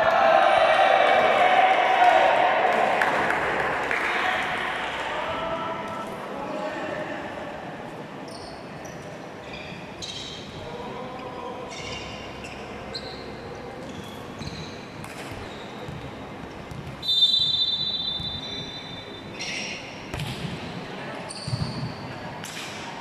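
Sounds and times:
shoes squeaking on court floor: 8.2s - 10.6s, 11.7s - 20.2s, 21.2s - 22.3s
referee whistle blast: 17.0s - 19.2s.

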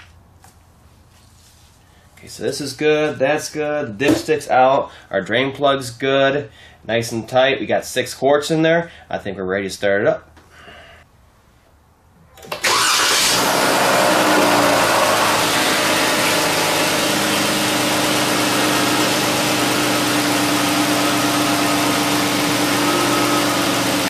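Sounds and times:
car engine starting and idling: 12.4s - 24.0s.

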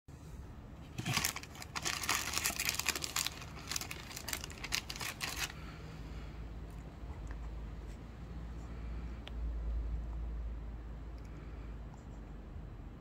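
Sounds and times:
plastic wrapper crinkling: 0.8s - 5.6s.

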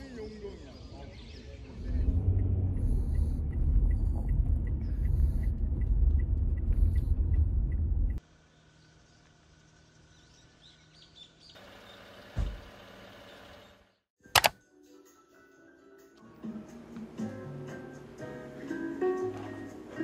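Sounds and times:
open air ambience: 0.0s - 14.5s
road rumble inside a car: 1.8s - 8.2s.

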